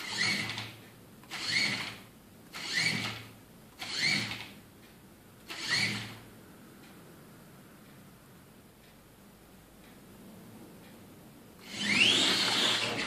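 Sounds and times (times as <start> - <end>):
robot motors whirring: 11.6 - 13.0.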